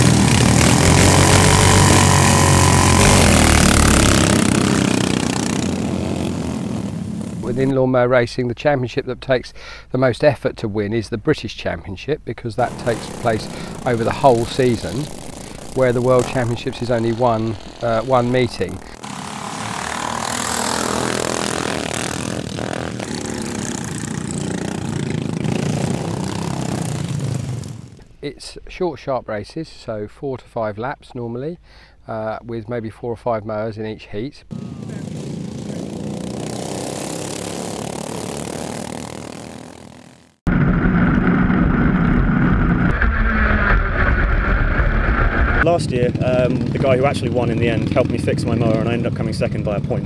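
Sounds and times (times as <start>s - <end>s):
lawnmowers racing past: 0.0s - 7.7s, 12.6s - 27.9s, 34.5s - 40.3s
small petrol engines droning: 0.0s - 7.7s, 12.6s - 28.0s, 34.5s - 50.0s.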